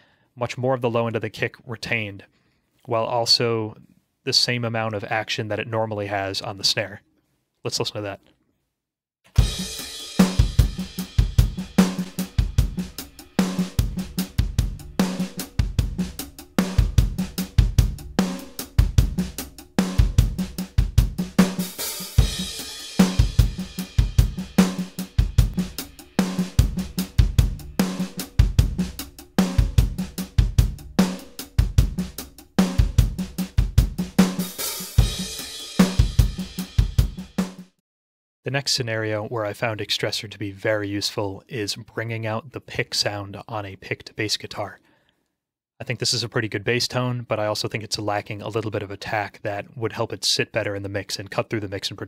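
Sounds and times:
drum kit playing a steady groove: 9.3s - 37.8s.

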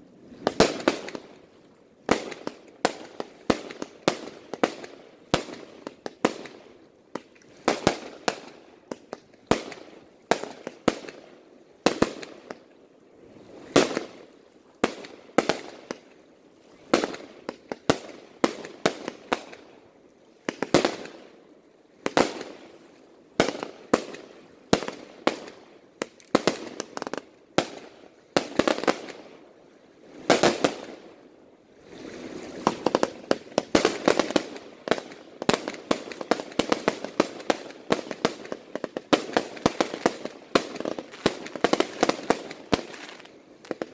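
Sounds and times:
fireworks crackling: 22.1s - 22.6s, 23.4s - 29.3s, 30.2s - 31.0s, 32.0s - 43.9s.

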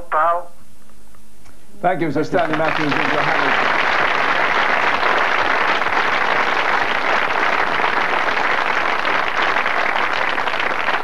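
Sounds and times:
audience applauding: 2.3s - 11.0s.

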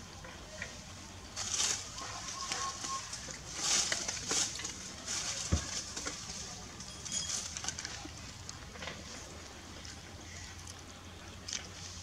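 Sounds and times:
dry leaves rustling and crackling: 0.7s - 10.8s.

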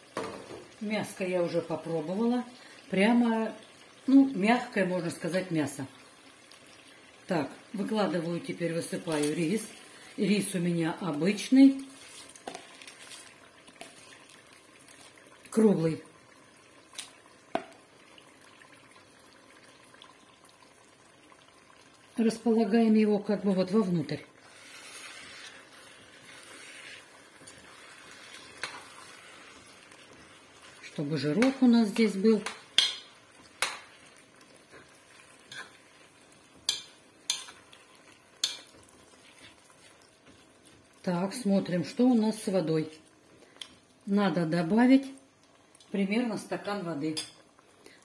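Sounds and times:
spoon scraping rice: 24.4s - 29.5s.

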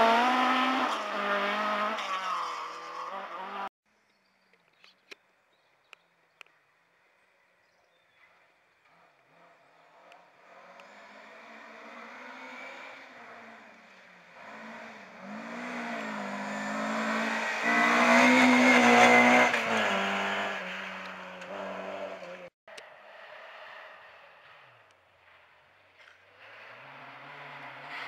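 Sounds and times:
rally car engine revving hard: 0.0s - 3.7s, 14.3s - 22.5s
faint car engine: 6.4s - 28.0s.

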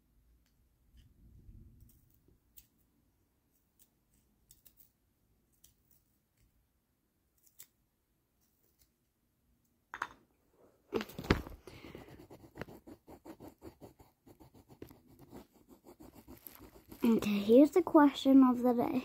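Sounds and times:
scratching and rubbing on microphone: 11.0s - 18.2s.

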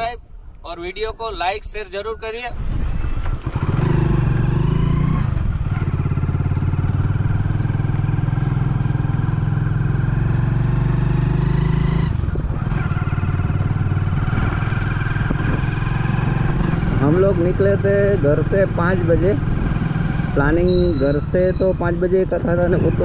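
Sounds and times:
motorcycle engine running: 3.0s - 23.0s.

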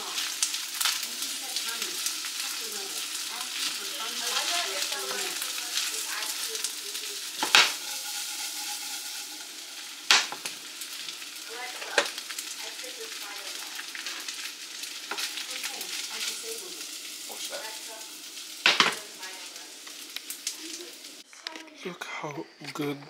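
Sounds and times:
food sizzling in a frying pan: 0.0s - 21.3s
utensil clacking against pan: 7.4s - 10.5s.

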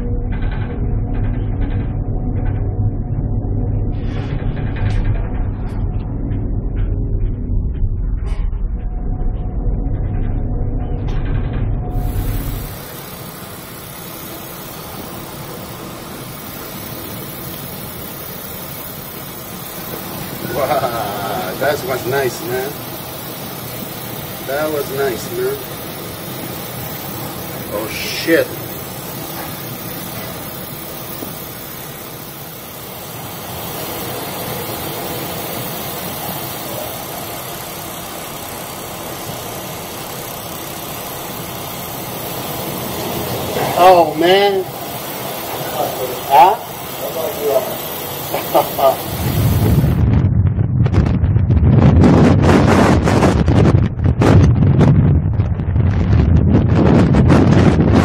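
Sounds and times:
low ship engine hum: 0.0s - 50.5s
wind: 14.9s - 58.0s
storm wind: 49.0s - 58.0s.

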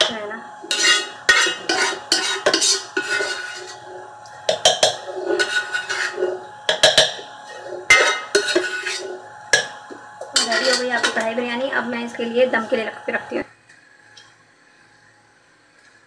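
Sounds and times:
utensil scraping steel pan: 0.6s - 9.7s, 10.3s - 11.3s.

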